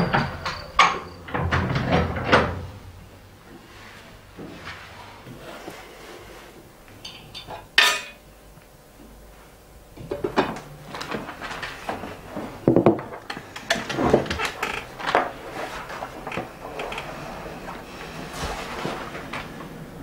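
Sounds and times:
kitchenware clatter: 7.0s - 8.2s
spoons clinking on plates: 7.0s - 8.2s.

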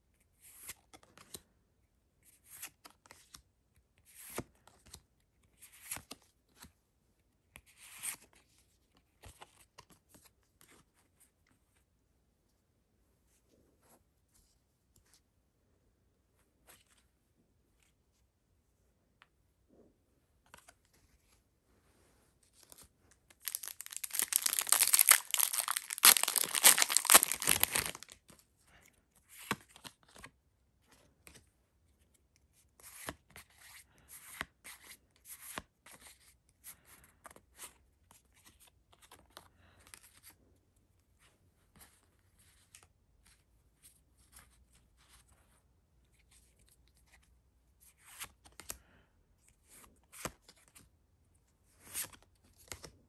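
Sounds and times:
cards sliding and flipping: 4.1s - 6.7s, 7.6s - 11.0s, 20.4s - 21.4s, 46.1s - 48.8s, 51.8s - 52.9s
foil wrapper tearing: 23.4s - 28.2s.

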